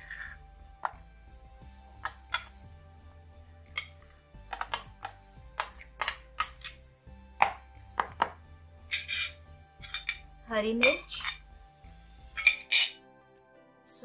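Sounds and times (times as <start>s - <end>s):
soft background music: 0.0s - 14.0s
spoon knocking against ceramic bowl: 3.8s - 6.8s.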